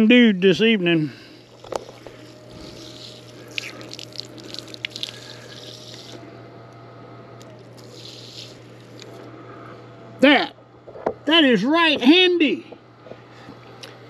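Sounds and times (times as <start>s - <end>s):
small pump humming: 0.0s - 14.0s
water spraying and splashing: 2.5s - 6.2s.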